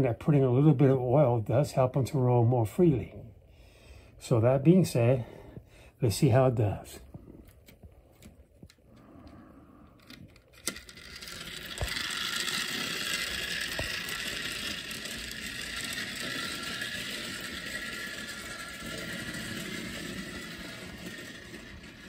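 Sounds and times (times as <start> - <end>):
clockwork toy train whirring: 9.0 - 22.0.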